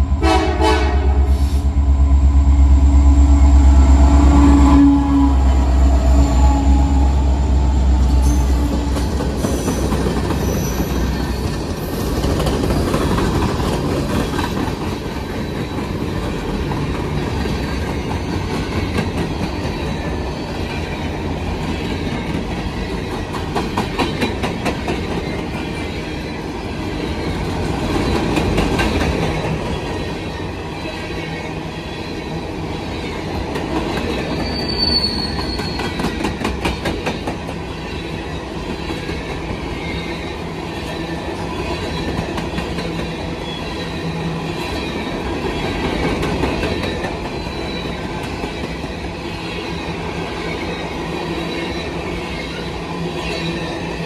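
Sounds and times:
train wheels rumbling on rail: 0:00.0 - 0:54.0
high wheel squeal: 0:01.3 - 0:12.2, 0:34.0 - 0:36.1.

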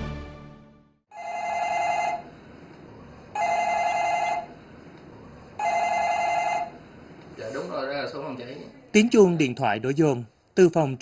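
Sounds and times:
telephone electronic ringer ringing: 0:01.1 - 0:02.3, 0:03.4 - 0:04.5, 0:05.6 - 0:06.8.

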